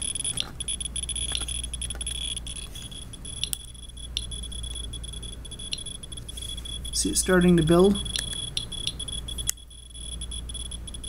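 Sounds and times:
sharp clicks: 0.0 - 5.0, 8.1 - 9.7
radiation counter chirping: 0.0 - 11.0.

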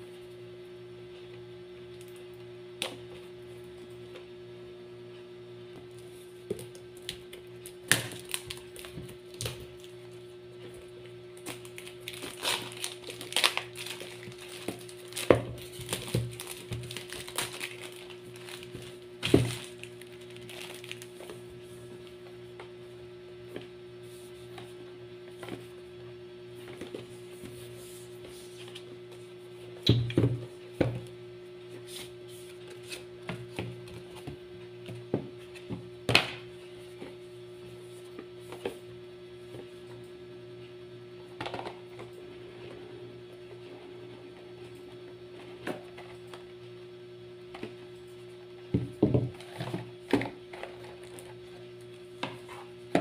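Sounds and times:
plastic shrink-wrap crinkling: 7.6 - 9.9, 11.4 - 21.2.

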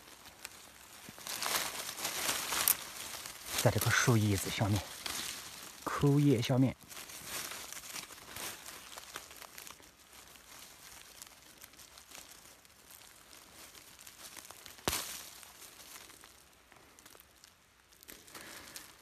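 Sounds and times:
dry leaves rustling: 0.0 - 19.0
sharp crack: 14.4 - 16.4.

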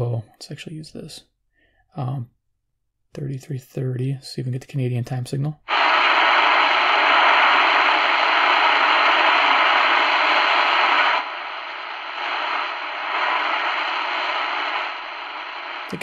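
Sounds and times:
shortwave radio static hissing: 5.7 - 16.0.

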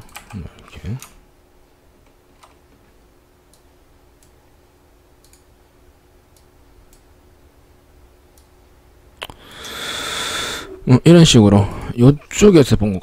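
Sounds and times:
low steady hum: 0.0 - 13.0
computer mouse clicks: 5.2 - 5.5.

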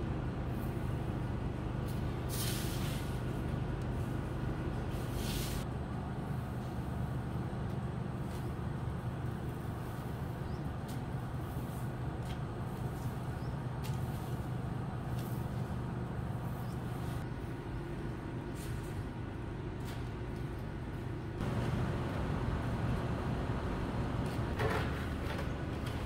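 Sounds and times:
low mechanical hum: 0.0 - 26.0
broom sweeping concrete floor: 1.9 - 4.1, 4.9 - 5.7, 9.6 - 15.8, 16.4 - 17.2, 18.5 - 19.0.

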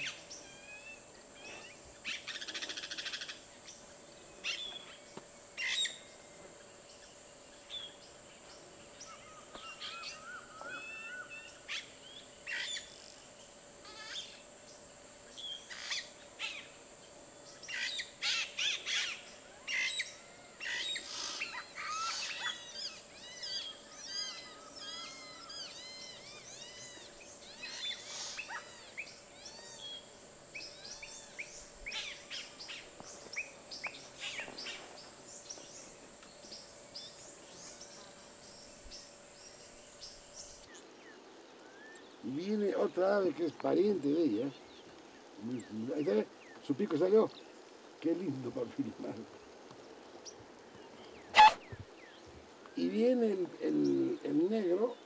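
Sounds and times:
bird calling: 0.0 - 3.8, 4.4 - 6.2, 7.6 - 13.1, 13.8 - 14.5, 15.3 - 16.8, 17.4 - 40.8, 50.2 - 55.0.

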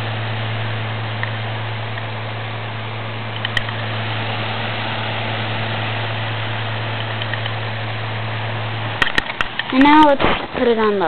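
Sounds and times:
electric fan running: 0.0 - 11.0.

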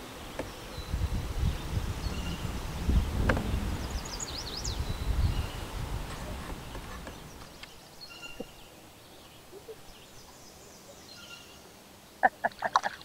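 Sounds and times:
lake ambience: 0.0 - 10.4.

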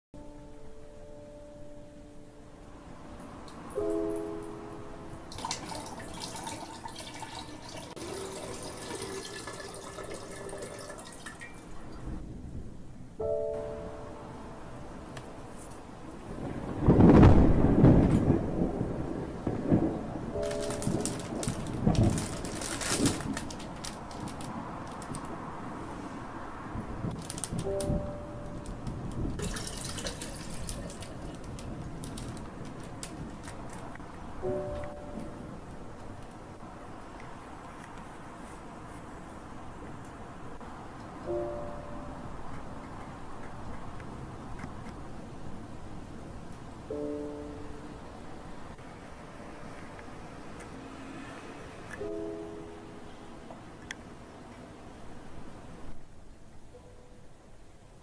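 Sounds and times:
water pouring into glass vase: 5.3 - 12.0, 29.4 - 32.4
small crackles: 19.4 - 25.5, 26.8 - 35.3.

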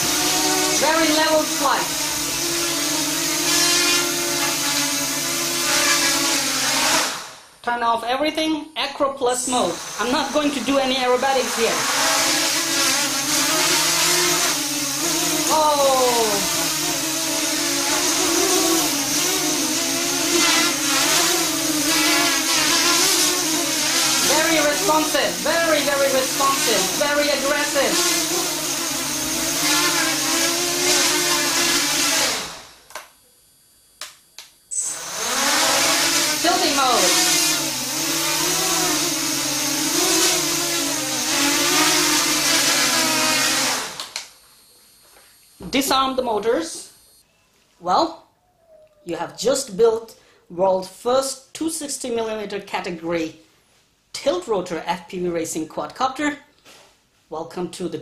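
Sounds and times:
drone motors whining: 0.0 - 7.3, 9.5 - 33.2, 34.7 - 45.8.

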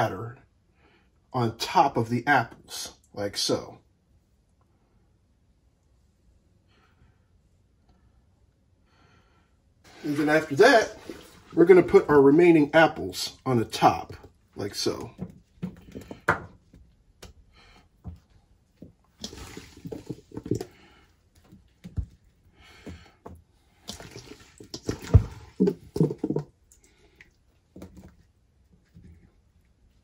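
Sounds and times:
wet squishing and plopping: 19.1 - 22.0, 23.8 - 28.1.

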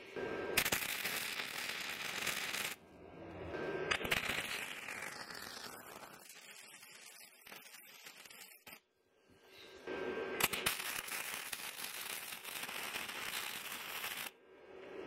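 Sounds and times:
welder arc crackling: 0.6 - 2.8, 3.9 - 8.8, 10.4 - 14.3.

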